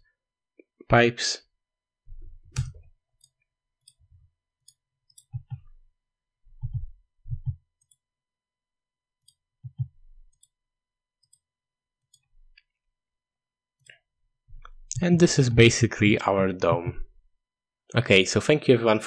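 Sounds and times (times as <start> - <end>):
computer mouse clicks: 2.5 - 4.0, 4.6 - 5.8, 6.6 - 8.0, 9.2 - 10.6, 11.2 - 12.7
dull low thumps: 6.6 - 7.6.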